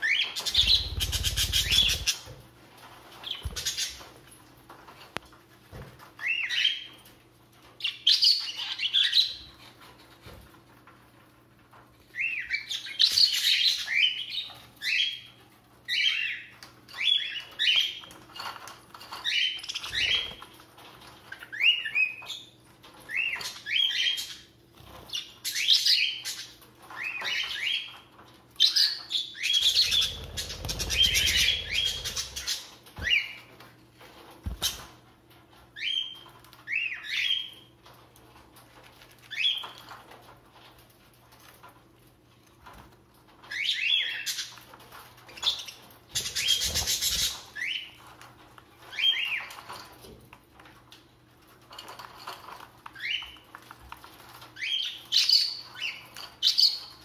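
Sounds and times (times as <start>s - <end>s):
budgerigars chirping: 0.0s - 2.3s, 28.7s - 33.4s.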